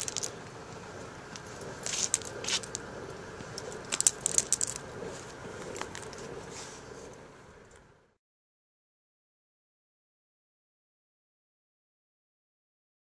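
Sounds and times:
sharp crackles and clicks: 0:00.0 - 0:06.4.

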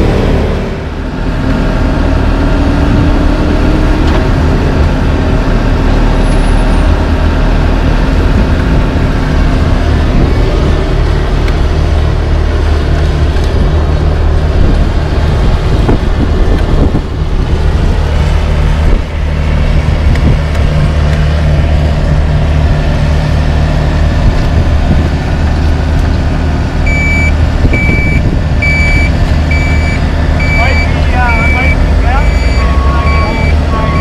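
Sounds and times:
heavy diesel engines running: 0:00.0 - 0:34.0
reversing alarm beeping: 0:26.8 - 0:34.0.

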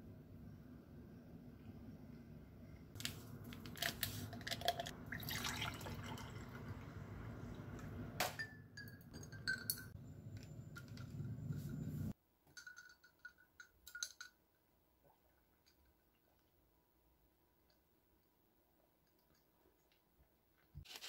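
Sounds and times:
sparkling water pouring into glass: 0:04.6 - 0:06.9
sharp glass clink: 0:08.2 - 0:10.0.

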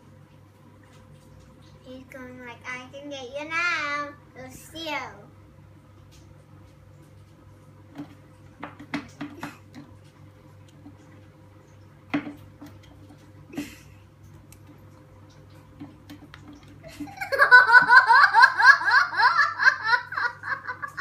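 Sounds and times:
girl giggling: 0:16.8 - 0:21.0.

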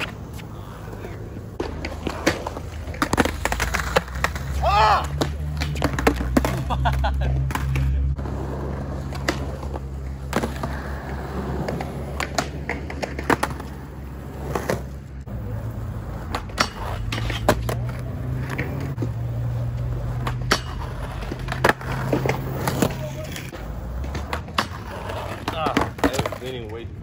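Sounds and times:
skateboard clacks: 0:00.0 - 0:27.0
skateboard wheels rolling on concrete: 0:00.0 - 0:27.0
skateboard hitting metal rail: 0:16.3 - 0:17.7, 0:20.2 - 0:22.8.

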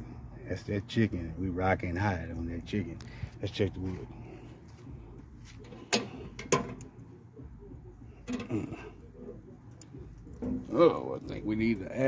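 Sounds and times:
metal lid clanks: 0:05.6 - 0:06.9, 0:08.2 - 0:08.8.

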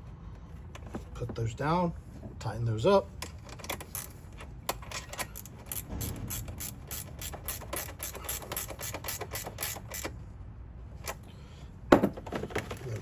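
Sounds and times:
ratchet wrench clicking: 0:03.6 - 0:10.1.

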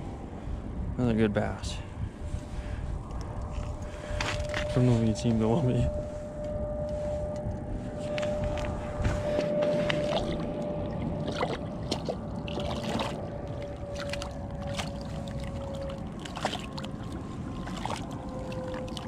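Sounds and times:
low rumble: 0:00.0 - 0:19.0
steady hum: 0:00.0 - 0:19.0
fish splashing in water: 0:09.8 - 0:19.0.

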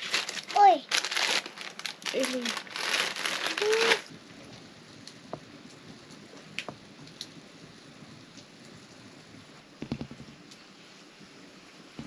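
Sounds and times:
loud crinkling rustle: 0:00.0 - 0:04.1
light rain falling: 0:00.0 - 0:12.0.

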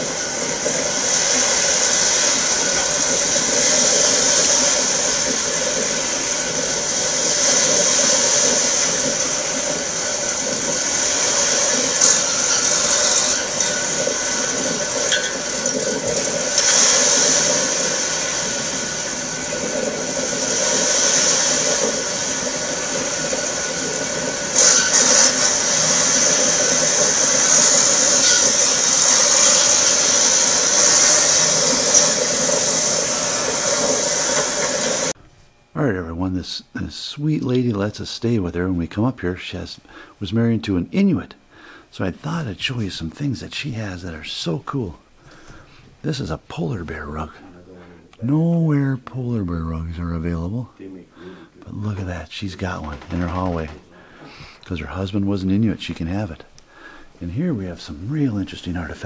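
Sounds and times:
rushing water: 0:00.0 - 0:35.2.

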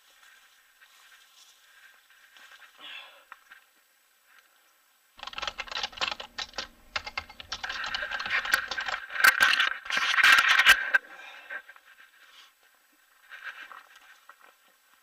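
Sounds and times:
leaves and branches rustling: 0:00.0 - 0:04.6.

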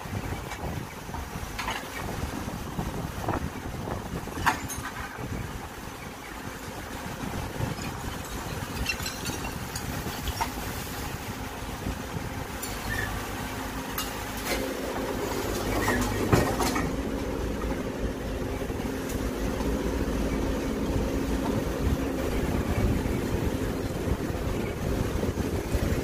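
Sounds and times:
diesel engine under load: 0:00.0 - 0:26.0
rubble knocking and clattering: 0:07.8 - 0:10.6, 0:15.6 - 0:17.0.

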